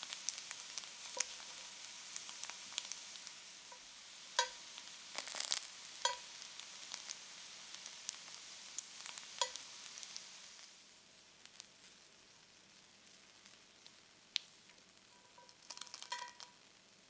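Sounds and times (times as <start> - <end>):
food sizzling in a skillet: 0.0 - 17.0
metal tongs clinking on pan: 4.4 - 4.6, 6.0 - 6.3, 9.4 - 9.6, 15.1 - 16.6.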